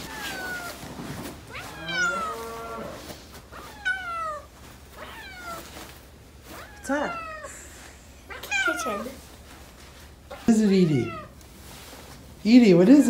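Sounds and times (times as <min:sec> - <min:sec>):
cat meowing: 0:00.0 - 0:00.8, 0:01.5 - 0:05.9, 0:06.5 - 0:07.6, 0:08.2 - 0:09.2, 0:10.3 - 0:11.4.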